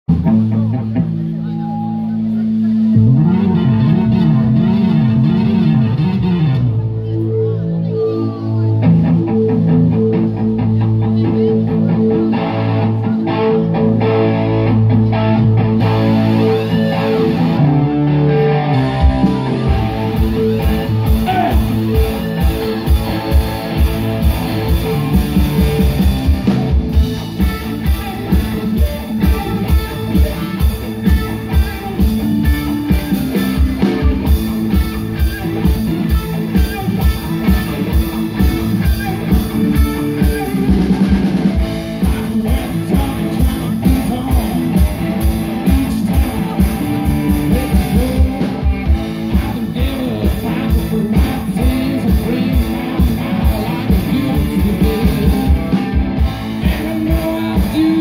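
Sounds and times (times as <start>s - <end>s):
bass guitar: 0.0s - 58.0s
electric guitar: 0.1s - 58.0s
drum kit beat: 15.8s - 58.0s.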